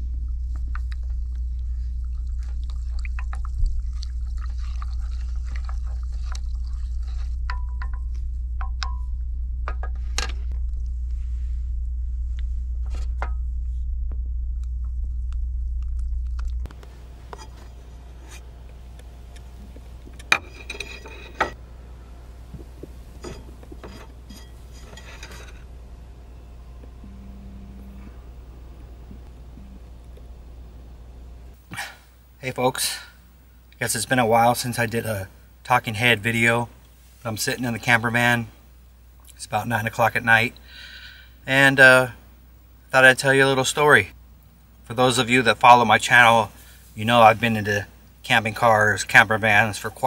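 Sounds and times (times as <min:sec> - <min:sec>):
low hum: 0:00.0 - 0:49.5
spoon stirring in a mug: 0:03.9 - 0:08.0.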